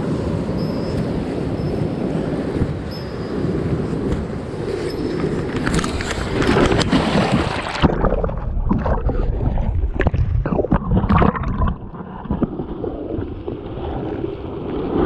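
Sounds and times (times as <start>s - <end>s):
muffled underwater flow: 0.0s - 15.0s
stream water rushing and gurgling: 4.0s - 12.4s
knocks and splashes: 5.5s - 13.6s.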